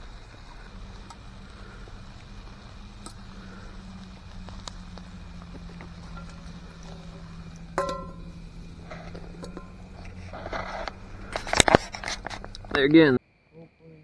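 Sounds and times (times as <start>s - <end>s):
campfire ticking: 0.0s - 12.9s
low steady hum: 0.0s - 12.9s
metal pan clanking: 7.7s - 8.4s.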